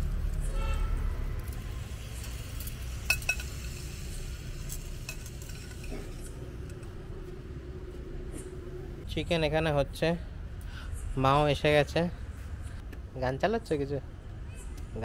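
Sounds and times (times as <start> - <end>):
chicken wings sizzling on grill: 1.3 - 6.8.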